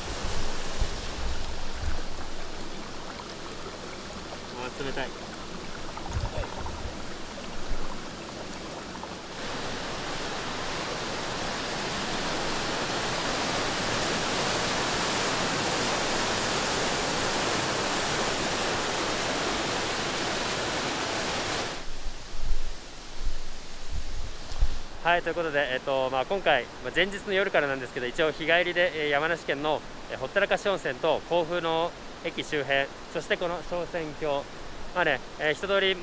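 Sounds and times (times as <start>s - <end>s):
whitewater rushing between boulders: 0.0s - 22.0s
stream running over rocks: 0.0s - 36.0s.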